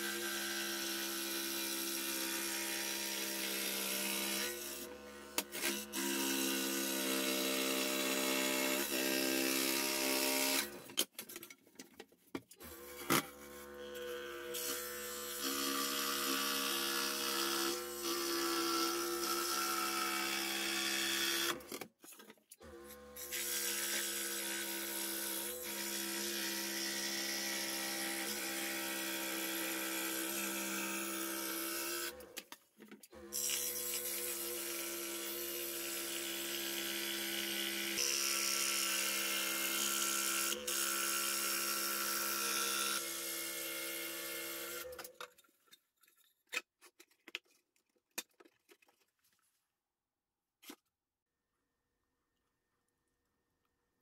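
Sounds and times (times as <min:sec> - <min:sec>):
scroll saw cutting plywood: 0:00.0 - 0:10.9, 0:12.6 - 0:21.9, 0:22.6 - 0:32.5, 0:33.1 - 0:45.2.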